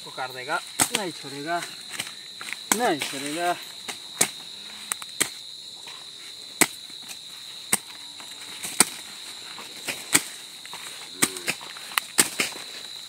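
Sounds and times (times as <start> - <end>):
high-pitched insect trill: 0.0 - 13.0
blade chopping stalks: 0.8 - 1.1, 1.9 - 5.4, 9.8 - 10.4, 11.2 - 12.7.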